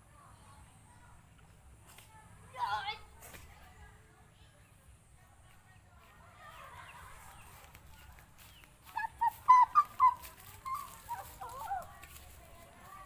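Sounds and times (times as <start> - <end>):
bird chirping: 7.3 - 11.8.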